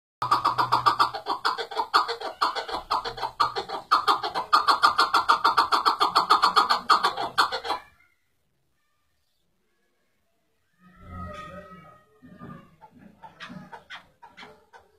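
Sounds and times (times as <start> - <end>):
partridge calling: 0.2 - 7.9.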